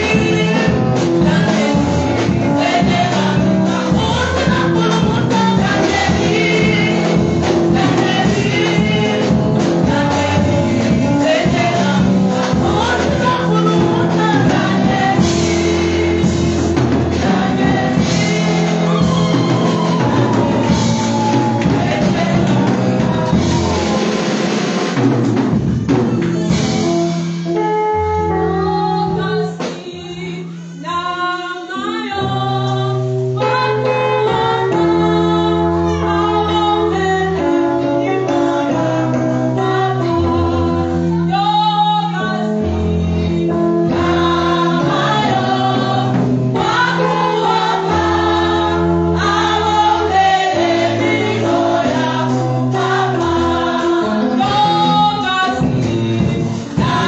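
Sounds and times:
electric keyboard: 0.0s - 57.0s
women's gospel choir singing: 0.0s - 57.0s.

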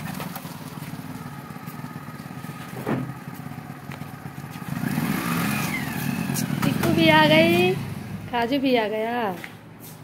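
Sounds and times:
motorcycle engine idling: 0.0s - 8.8s
brief thump: 2.8s - 3.1s.

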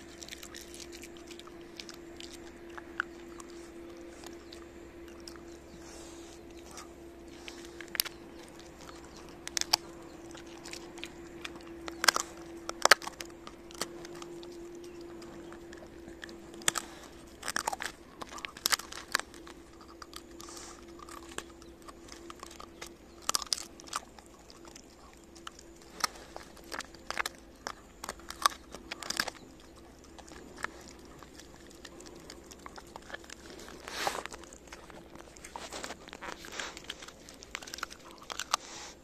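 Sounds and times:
dog crunching bones: 0.0s - 39.0s
faint steady hum: 0.0s - 39.0s.

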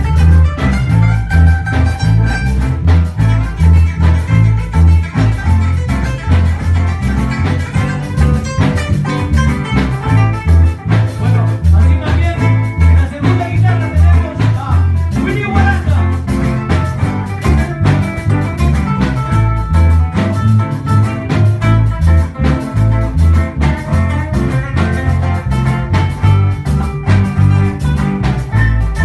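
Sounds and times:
classical guitar: 0.0s - 29.0s
drum kit beat: 0.0s - 29.0s
electric bass: 0.0s - 29.0s
man singing: 11.1s - 16.4s.

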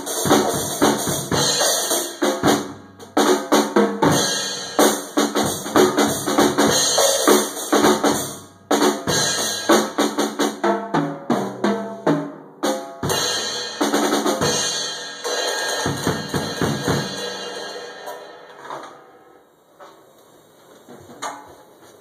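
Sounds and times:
drum kit playing: 0.0s - 19.3s
cymbal ringing: 14.5s - 19.4s.

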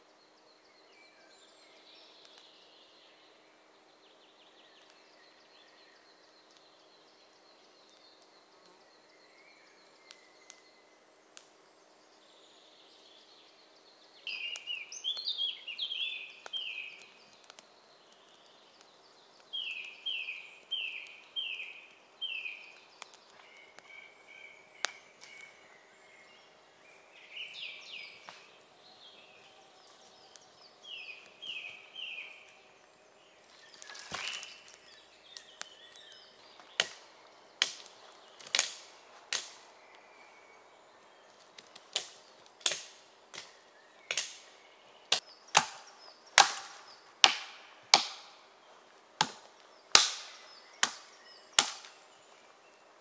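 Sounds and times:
small songbird singing: 0.0s - 48.9s, 49.5s - 53.0s
hatchet chopping wood: 45.1s - 48.4s, 49.2s - 52.0s.

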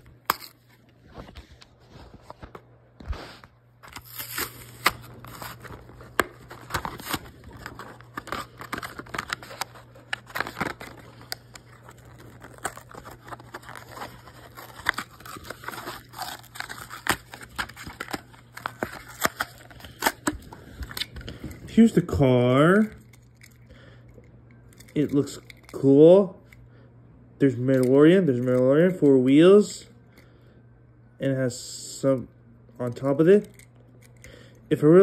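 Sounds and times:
cardboard tearing: 3.8s - 21.2s
plastic crinkling: 3.8s - 22.0s.

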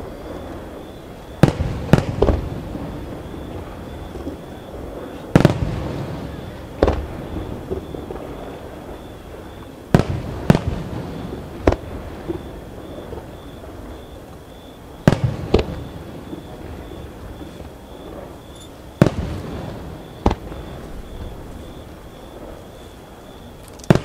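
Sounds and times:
fireworks booming: 0.0s - 24.0s.

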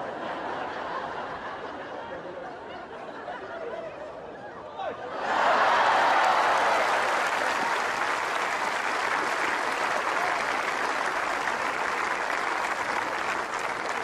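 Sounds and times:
crowd applauding: 5.2s - 14.0s.

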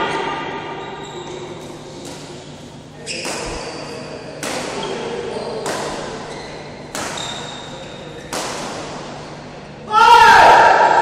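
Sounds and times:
shoes squeaking on court: 0.8s - 9.8s
rackets hitting shuttlecock: 1.6s - 9.6s.

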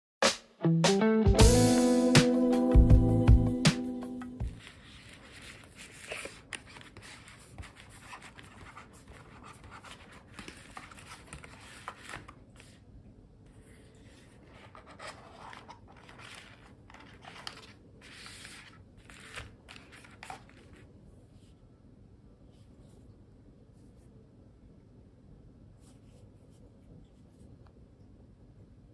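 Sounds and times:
packaging scratching and rubbing: 4.5s - 12.8s, 13.8s - 20.9s.

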